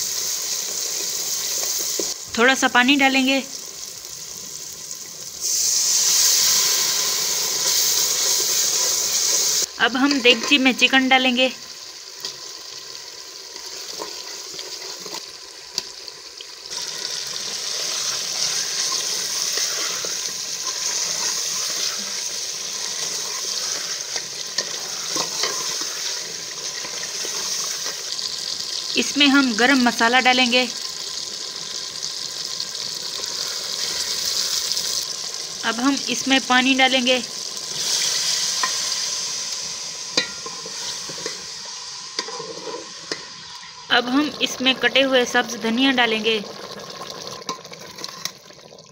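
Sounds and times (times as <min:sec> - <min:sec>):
chicken sizzling in a pot: 0:00.0 - 0:48.9
metal ladle clinking pot: 0:40.2 - 0:41.4
water poured into pot: 0:45.5 - 0:48.9.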